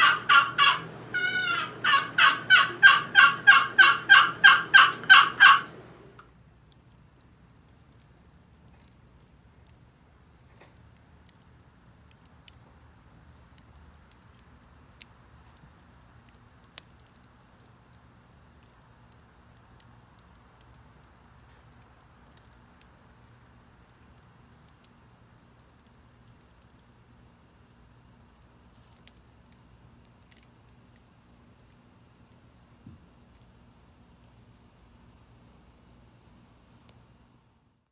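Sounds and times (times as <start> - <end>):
turkey box call strokes: 0.0 - 6.2.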